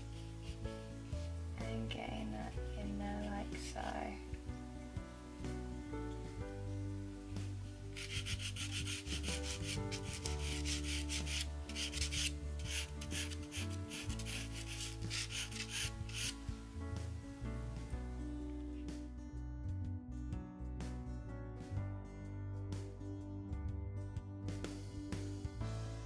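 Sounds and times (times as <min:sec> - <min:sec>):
soft background music: 0:00.0 - 0:26.0
pastel pencil scratching on paper: 0:08.0 - 0:16.4.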